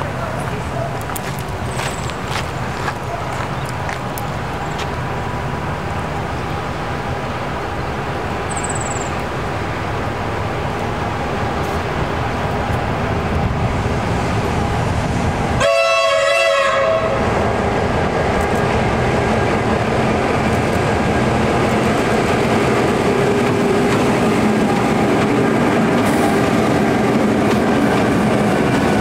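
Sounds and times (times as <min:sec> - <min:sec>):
train wheels rumbling on rails: 0:00.0 - 0:29.0
locomotive horn blast: 0:15.6 - 0:17.4.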